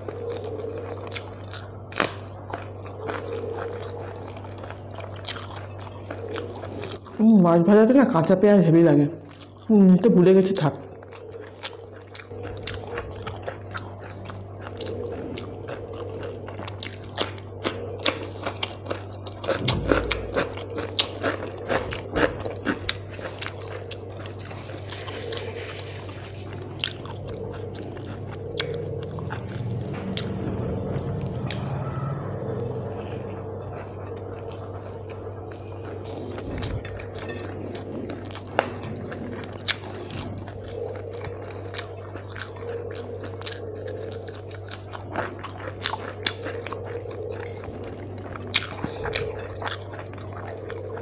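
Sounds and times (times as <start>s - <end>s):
person chewing wetly: 0.0s - 9.8s, 10.4s - 31.7s, 32.4s - 51.0s
steady low hum: 0.0s - 51.0s
crunching: 10.9s - 51.0s.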